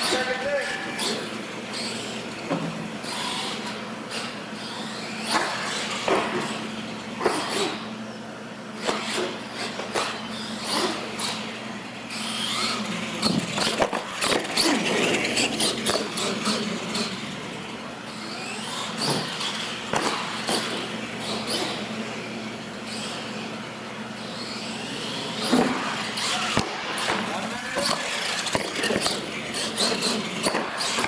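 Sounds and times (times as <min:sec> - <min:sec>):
toy truck motor whining: 0:03.0 - 0:07.9, 0:08.8 - 0:26.6, 0:27.3 - 0:31.0
toy truck hitting floor and ramps: 0:12.4 - 0:17.2, 0:18.7 - 0:21.8, 0:25.4 - 0:31.0.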